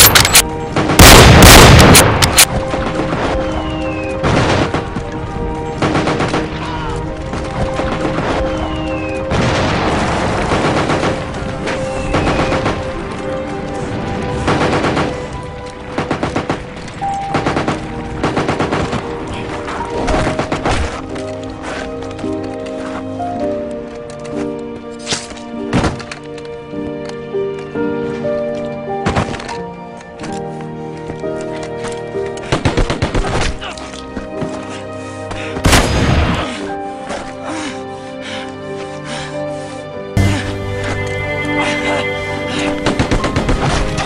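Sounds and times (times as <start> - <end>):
background music sustained notes: 0.0 - 44.0
gunshots: 0.8 - 3.6, 9.3 - 11.4
machine-gun fire: 0.9 - 2.1.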